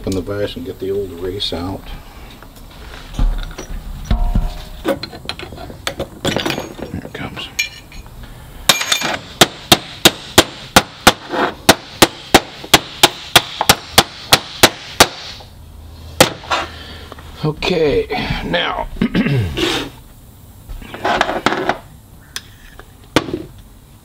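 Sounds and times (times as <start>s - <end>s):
hammer striking steel punch: 4.1s - 5.0s, 16.2s - 16.4s
light metal clinking: 6.2s - 8.1s, 8.7s - 9.2s.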